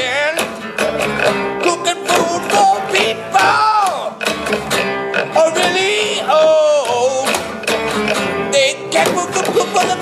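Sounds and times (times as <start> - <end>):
plucked double bass: 0.0 - 10.0
strummed acoustic guitar: 0.0 - 10.0.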